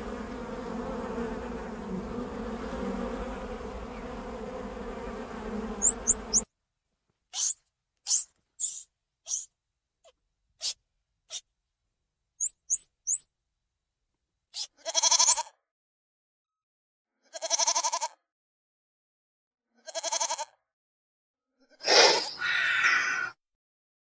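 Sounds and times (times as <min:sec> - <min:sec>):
monkey squeaks: 0:07.4 - 0:09.5, 0:12.4 - 0:13.3, 0:14.6 - 0:15.4
goat bleating: 0:14.6 - 0:15.5, 0:17.3 - 0:18.2, 0:19.8 - 0:20.5.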